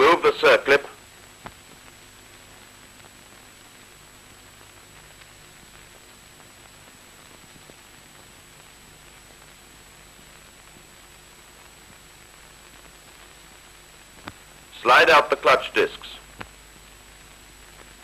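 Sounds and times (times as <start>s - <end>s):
film soundtrack hiss and hum: 0.0s - 18.0s
faint ticks: 1.3s - 3.5s, 12.6s - 14.6s, 16.3s - 18.0s.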